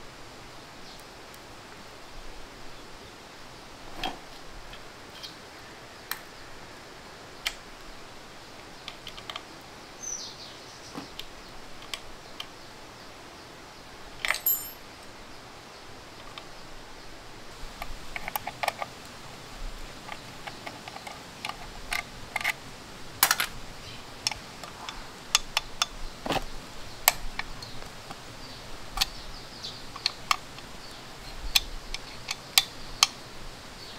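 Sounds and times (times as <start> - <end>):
steady hiss: 0.0 - 33.9
small parts clicking and tapping: 8.6 - 9.5, 11.0 - 12.6, 14.2 - 14.8, 17.8 - 19.2, 19.9 - 22.6, 23.2 - 23.6, 24.2 - 26.4, 29.0 - 29.2, 29.8 - 33.2.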